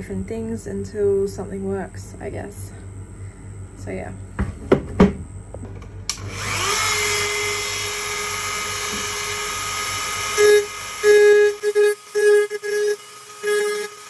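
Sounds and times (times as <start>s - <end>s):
short low-pitched hums: 0.0s - 14.0s
rotary tool whining: 6.1s - 14.0s.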